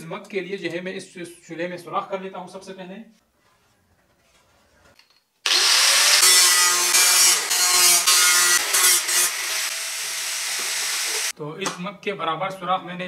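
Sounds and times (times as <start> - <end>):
angle grinder cutting sheet metal: 5.4 - 11.3.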